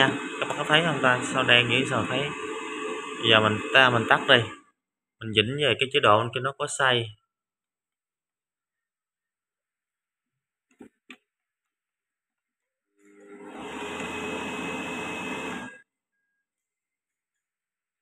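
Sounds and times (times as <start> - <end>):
air fryer fan whoosh: 0.0 - 4.5, 13.2 - 15.8.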